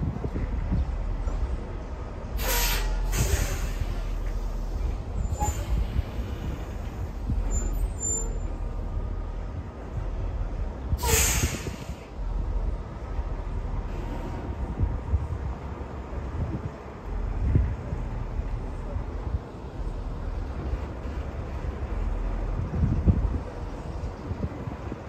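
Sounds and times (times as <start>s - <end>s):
diesel truck engine running: 0.0s - 25.0s
air-brake hisses: 2.4s - 6.8s, 11.0s - 12.1s.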